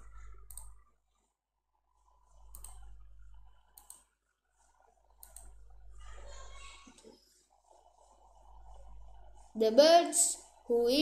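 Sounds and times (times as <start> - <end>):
computer mouse clicks: 0.0 - 0.8, 2.5 - 2.9, 3.7 - 4.1, 5.1 - 5.6
low electrical hum: 1.8 - 11.0.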